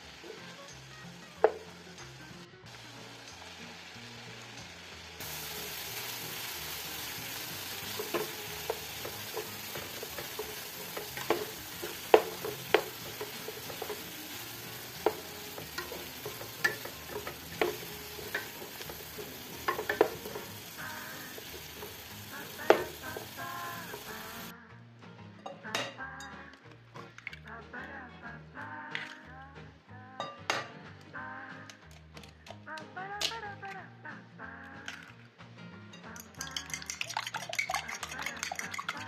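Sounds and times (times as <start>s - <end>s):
vegetables sizzling in a pan: 0.0s - 24.5s, 36.4s - 39.0s
spatula scraping a pan: 6.0s - 24.5s.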